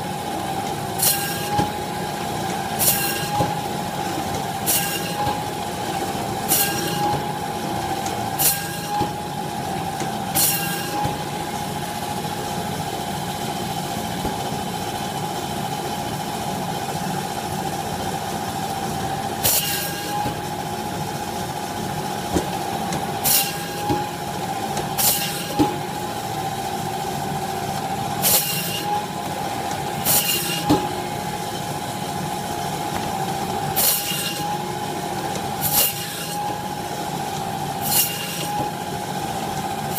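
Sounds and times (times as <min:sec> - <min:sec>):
band saw whining: 0:00.0 - 0:16.0, 0:19.3 - 0:39.9
saw blade rasping through bone: 0:28.2 - 0:28.9, 0:30.0 - 0:30.7, 0:33.8 - 0:34.5, 0:35.6 - 0:36.4, 0:37.8 - 0:38.5.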